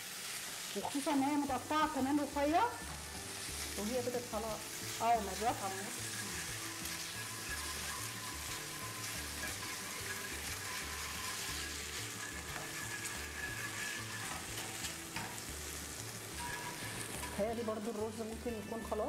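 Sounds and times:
chicken sizzling in frying pan: 0:00.0 - 0:19.0.

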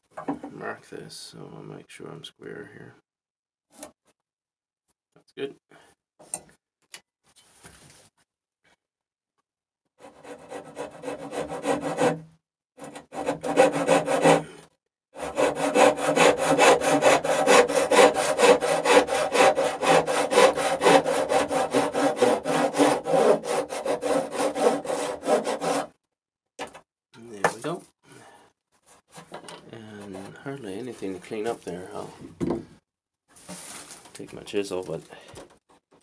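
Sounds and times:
hand saw cutting wood: 0:10.0 - 0:26.0.

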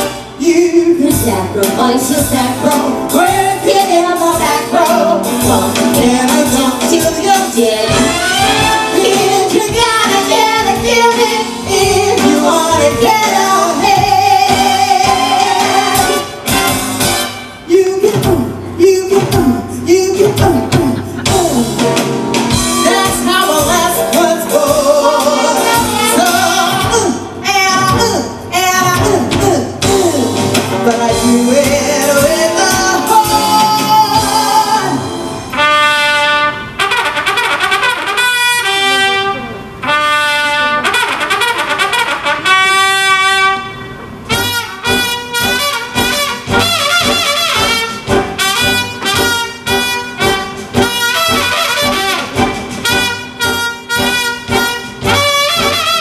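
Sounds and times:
brassy band music: 0:00.0 - 0:56.0
trumpet playing held notes: 0:07.2 - 0:18.0, 0:22.5 - 0:27.1, 0:31.6 - 0:56.0.

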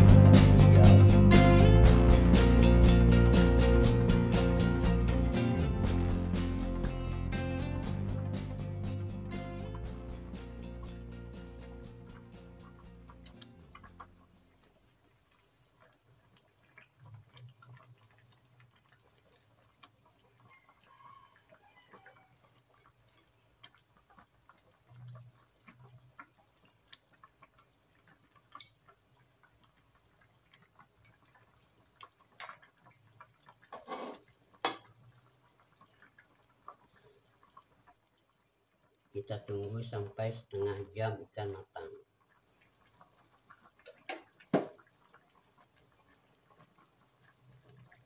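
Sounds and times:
sauce simmering in a wok: 0:00.0 - 0:48.0
small ticks: 0:19.7 - 0:31.4.

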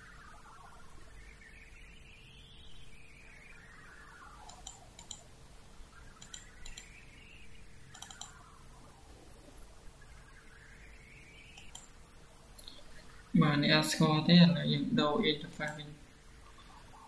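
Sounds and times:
faint steady hum: 0:00.0 - 0:17.0
faint tone rising and falling: 0:00.0 - 0:17.0
computer mouse clicks: 0:04.4 - 0:05.3, 0:06.2 - 0:07.0, 0:07.9 - 0:08.5, 0:11.5 - 0:12.0, 0:15.5 - 0:15.8.

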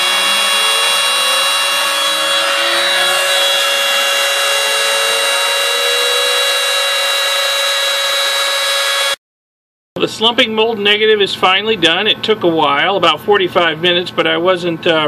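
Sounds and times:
low tone rising in pitch: 0:00.0 - 0:09.2
router spindle whine: 0:00.0 - 0:09.2.

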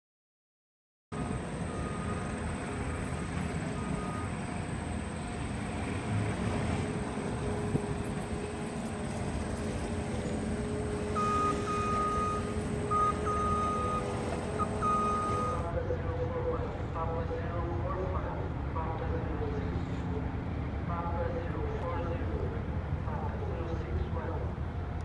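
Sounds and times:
low outdoor rumble: 0:01.2 - 0:25.0
high steady tone: 0:09.6 - 0:15.6.

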